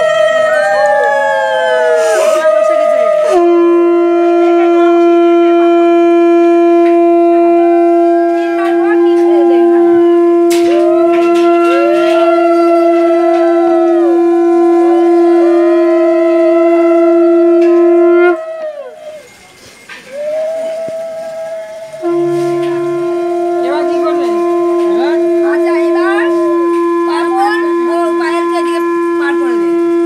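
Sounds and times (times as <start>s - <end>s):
conch shell long note: 0.0s - 30.0s
higher rising and falling notes: 21.0s - 30.0s.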